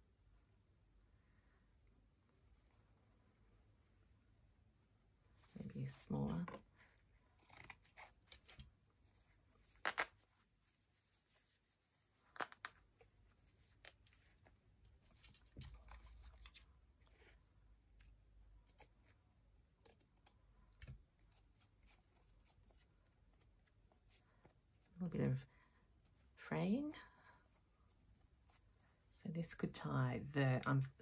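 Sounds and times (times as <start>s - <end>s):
fabric scissors snipping: 7.3s - 8.6s.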